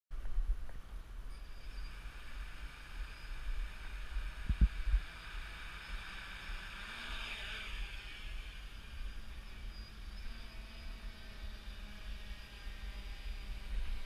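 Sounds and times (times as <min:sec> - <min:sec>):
wind buffeting microphone: 0:03.4 - 0:05.4.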